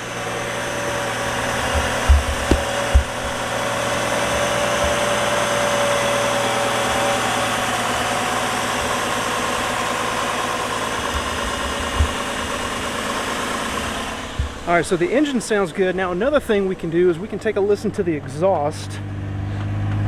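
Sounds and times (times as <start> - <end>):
car engine idling: 0.0 - 19.7
brief knock: 2.0 - 3.2.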